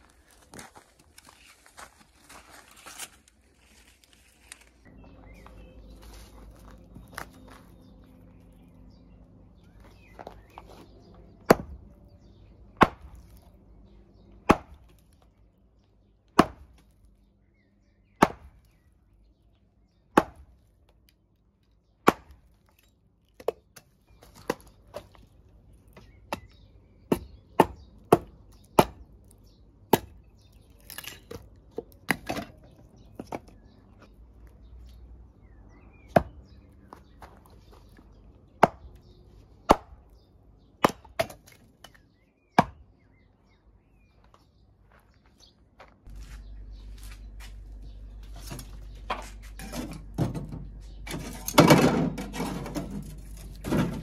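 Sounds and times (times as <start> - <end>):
axe chopping into log: 11.5 - 11.8, 12.8 - 13.2, 14.4 - 15.0, 16.4 - 16.9, 18.2 - 18.6, 20.1 - 20.5, 22.0 - 22.4, 38.6 - 38.9, 39.6 - 40.0, 40.8 - 41.6, 42.6 - 42.8.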